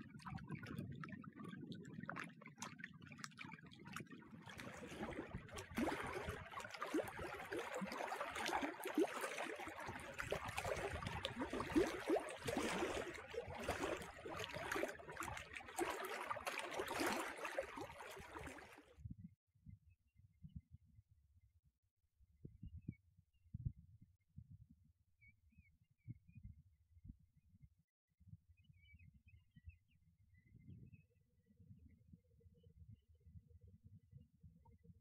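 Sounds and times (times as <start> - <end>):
lake water lapping against rocks: 0.0 - 18.9.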